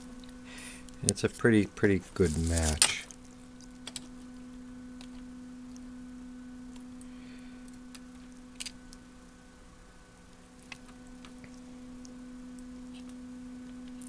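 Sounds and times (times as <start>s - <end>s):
steady low hum: 0.0s - 14.0s
faint clicks of small parts: 2.2s - 4.2s, 6.7s - 9.0s.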